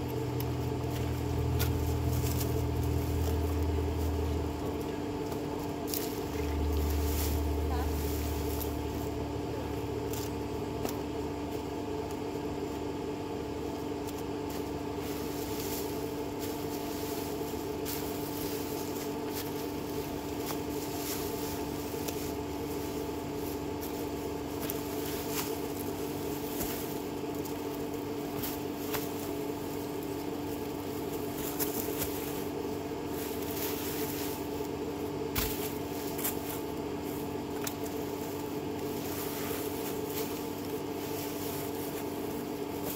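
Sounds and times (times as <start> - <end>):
vehicle engine running: 0.0 - 42.9.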